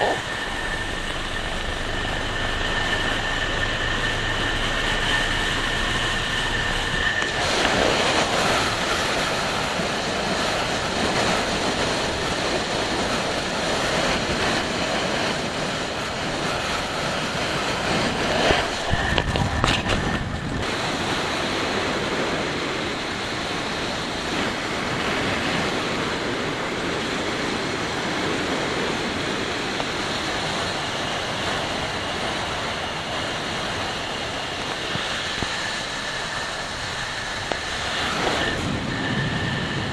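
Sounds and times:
motorcycle engine: 0.0s - 9.8s
road noise: 0.0s - 39.9s
wind buffeting microphone: 0.0s - 39.9s.

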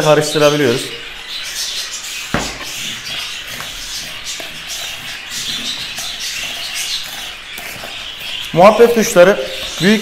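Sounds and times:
budgerigars chirping: 0.0s - 10.0s
spoon scraping plastic bowl: 2.2s - 10.0s.

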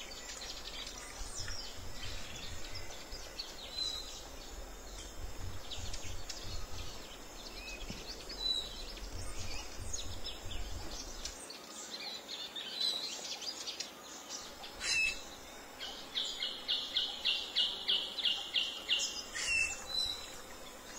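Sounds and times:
birds calling and chirping: 0.0s - 20.9s
low rumble: 4.9s - 11.3s.

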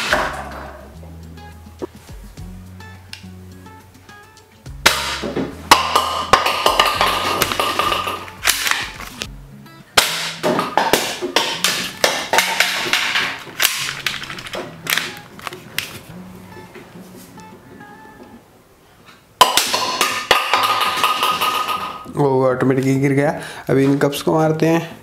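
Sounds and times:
background music: 0.0s - 18.8s
plastic toy pins clattering: 10.6s - 15.2s.

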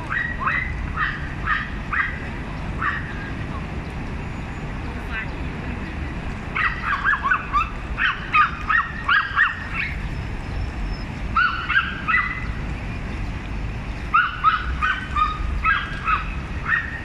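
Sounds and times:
small dogs yapping: 0.0s - 3.2s, 6.5s - 10.1s, 11.3s - 12.6s, 14.1s - 17.0s.

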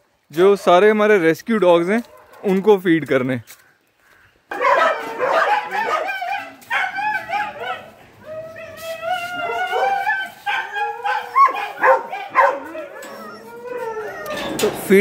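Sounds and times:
dogs yipping and whining: 4.5s - 14.8s.

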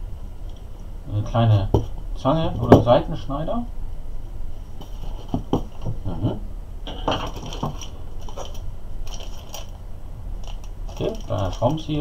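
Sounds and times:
plastic wrap crinkling: 7.3s - 9.8s, 10.4s - 12.0s.

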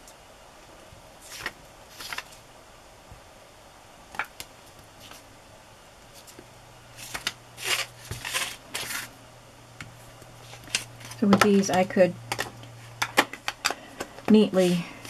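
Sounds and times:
paper rustling: 1.2s - 2.4s, 4.6s - 5.3s, 6.1s - 9.1s, 10.4s - 12.5s.

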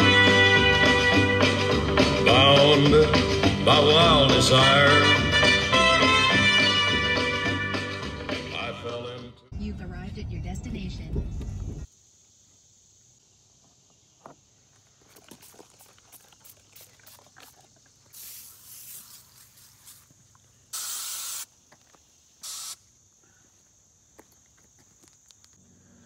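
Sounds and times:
high insect drone: 11.8s - 26.0s
footsteps crunching on gravel: 13.6s - 20.5s, 21.6s - 22.2s, 23.4s - 25.6s
aerosol spray can hissing: 15.5s - 20.1s, 20.7s - 21.5s, 22.4s - 22.9s.

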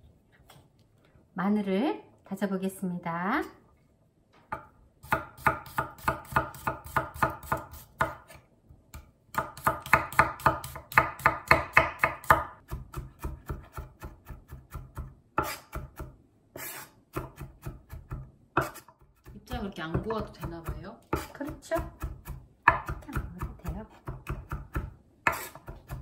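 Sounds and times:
knife chopping on wooden board: 4.5s - 8.4s, 9.3s - 26.0s.

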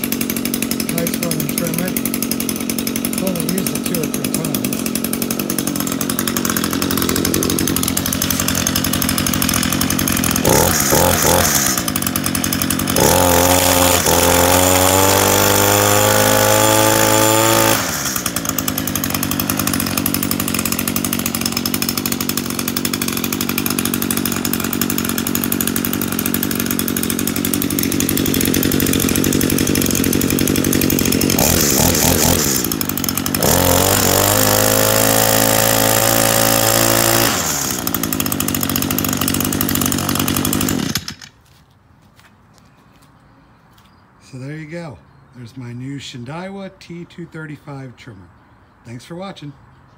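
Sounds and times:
string trimmer engine revving: 0.0s - 41.4s.

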